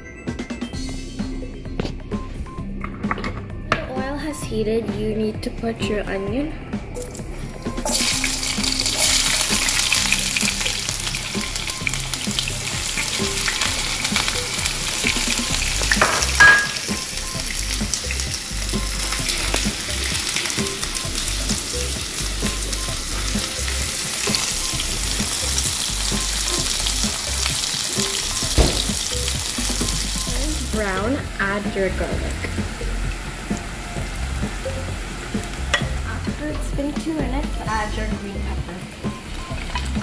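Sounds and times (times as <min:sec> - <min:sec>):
onion sizzling in hot oil: 0:07.0 - 0:40.0
sharp knock with ring: 0:28.6 - 0:29.0.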